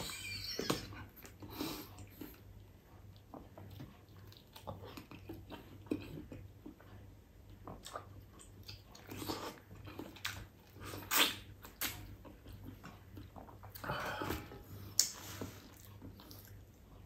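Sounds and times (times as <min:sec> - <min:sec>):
mouth biting sucking and chewing: 0:08.7 - 0:12.6.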